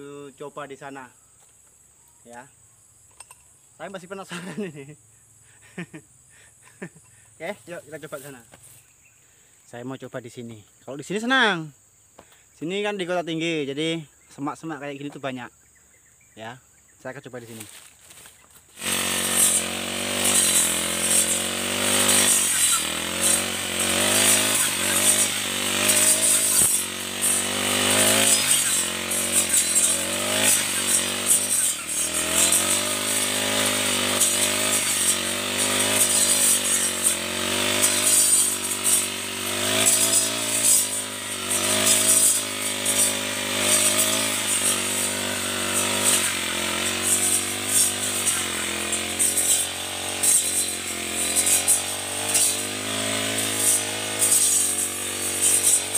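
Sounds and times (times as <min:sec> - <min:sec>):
brush cutter cutting shrubs: 0:03.1 - 0:04.8, 0:06.6 - 0:09.2, 0:17.4 - 0:55.9.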